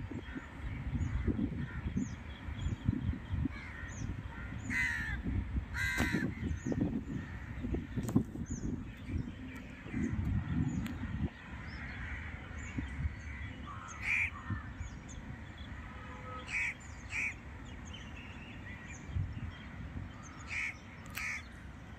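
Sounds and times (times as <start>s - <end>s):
crows cawing: 3.5s - 6.5s, 11.0s - 14.8s, 16.4s - 17.4s, 20.2s - 21.5s.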